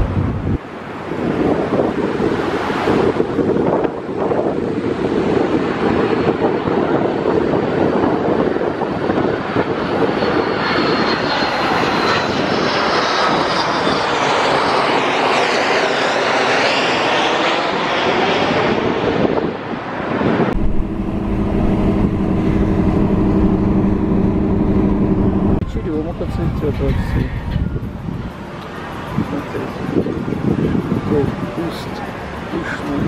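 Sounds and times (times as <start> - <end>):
jet airliner roaring overhead: 0.0 - 33.0
car driving hum: 20.5 - 25.7.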